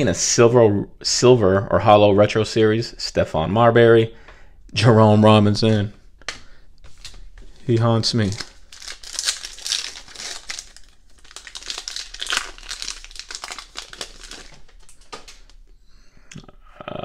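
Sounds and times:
foil wrapper crinkling and tearing: 6.9s - 15.6s.

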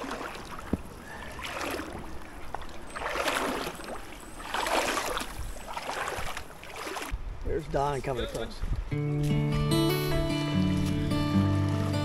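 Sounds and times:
legs wading through water: 0.0s - 7.4s, 10.4s - 12.0s.

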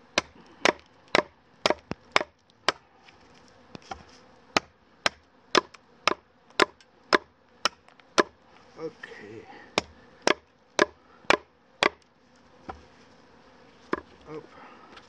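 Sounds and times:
knife chopping wood: 0.1s - 2.8s, 3.7s - 8.4s, 9.7s - 12.0s, 12.6s - 12.8s.

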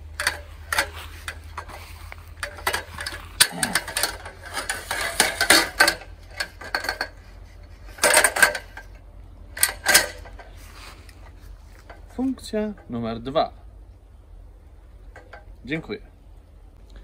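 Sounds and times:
metal scaffold parts clanking: 0.0s - 13.0s, 15.1s - 15.6s.

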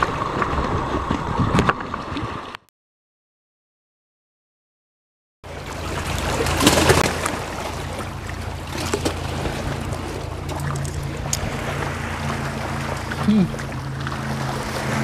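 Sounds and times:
wind rushing over microphone: 0.0s - 2.4s
water lapping against wooden pier: 0.0s - 2.6s, 5.4s - 15.0s.

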